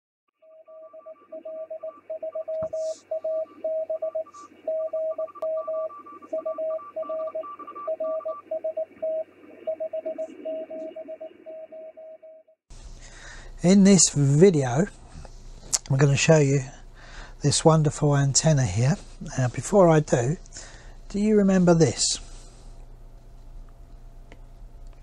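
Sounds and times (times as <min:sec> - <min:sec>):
higher-pitched morse signal: 0:00.4 - 0:12.5
morse code tone: 0:00.4 - 0:12.5
receiver hiss: 0:01.0 - 0:11.5, 0:12.7 - 0:24.4.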